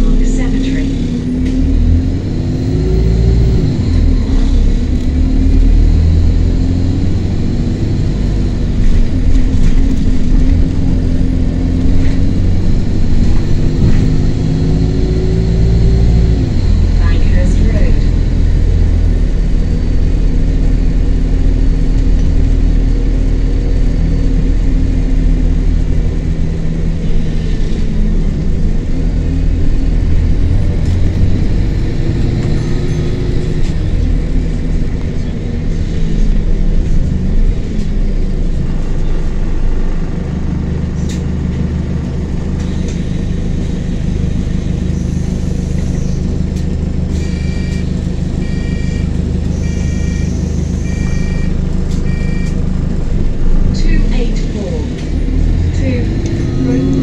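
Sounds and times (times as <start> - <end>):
bus diesel engine: 0.0 - 57.0
door warning buzzer beeping: 47.2 - 52.6.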